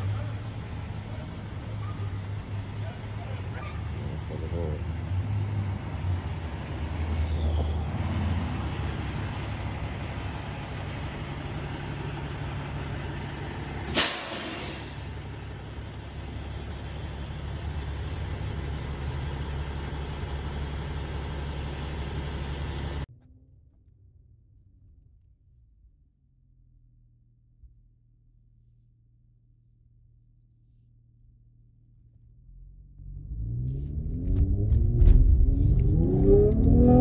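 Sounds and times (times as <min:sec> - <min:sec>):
car engine running: 0:00.0 - 0:07.4, 0:08.0 - 0:14.3, 0:14.9 - 0:24.8, 0:31.4 - 0:37.0
road noise: 0:00.0 - 0:23.1, 0:32.4 - 0:37.0
sharp pop: 0:13.9 - 0:15.0
short hiss: 0:13.9 - 0:15.1.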